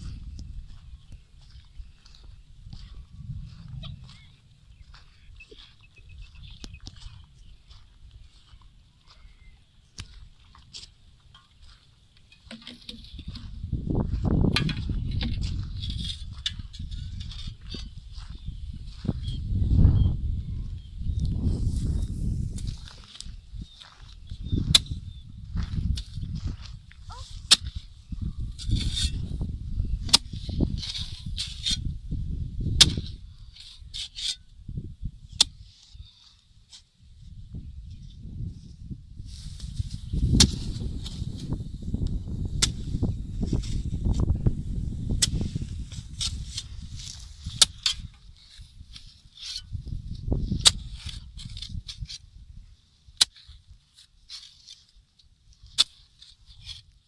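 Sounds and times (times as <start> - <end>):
wind buffeting microphone: 0.0 - 10.5, 13.0 - 36.1, 37.1 - 52.7
earth scraping and crumbling: 0.0 - 19.8, 21.3 - 34.5, 35.3 - 52.4, 53.1 - 57.0
hoe chopping into soil: 24.7 - 25.0, 27.1 - 27.8, 30.0 - 31.9, 32.8 - 34.4, 40.2 - 44.3, 45.1 - 48.6, 50.5 - 52.2
hoe thudding into soil: 32.8 - 33.1, 40.2 - 41.5.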